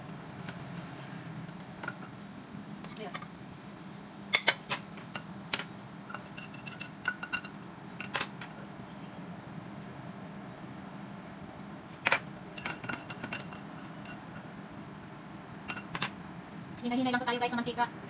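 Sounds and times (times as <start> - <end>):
steady low hum: 0.0 - 18.0
kitchenware clinking: 4.3 - 8.6, 12.0 - 14.4, 15.6 - 16.2.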